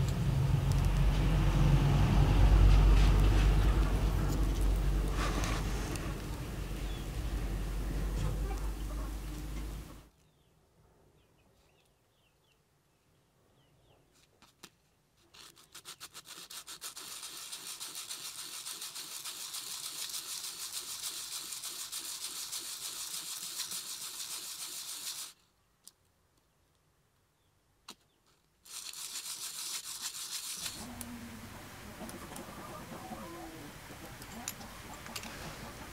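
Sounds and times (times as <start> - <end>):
metal scraping on sanding disc: 15.4 - 25.3, 28.7 - 30.9.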